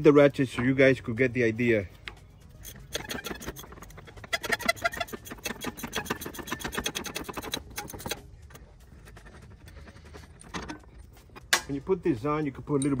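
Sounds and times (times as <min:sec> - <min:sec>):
ratchet wrench clicking: 0:02.6 - 0:08.2.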